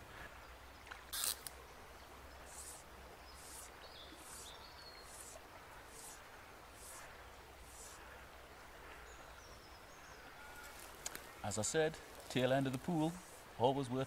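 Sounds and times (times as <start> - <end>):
fly line strokes: 1.1 - 1.6, 2.4 - 8.1, 12.0 - 13.6
fly line swishing: 1.1 - 1.6, 2.4 - 8.0.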